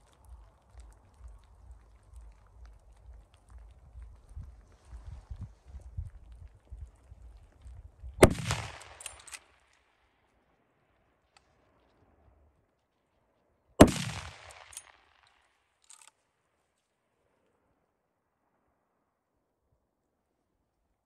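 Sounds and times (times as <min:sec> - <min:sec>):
rifle shots with echo: 0:08.2 - 0:09.7, 0:13.8 - 0:15.3.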